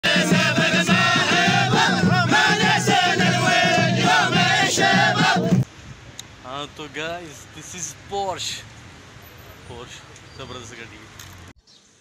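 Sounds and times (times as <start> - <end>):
men chanting and singing: 0.0 - 5.6
sharp beats: 0.0 - 5.6.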